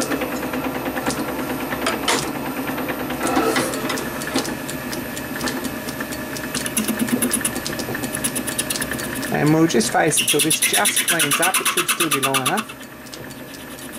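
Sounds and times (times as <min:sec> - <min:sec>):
metal lathe mechanical clatter: 0:00.0 - 0:13.9
fast even ticking: 0:04.2 - 0:13.9.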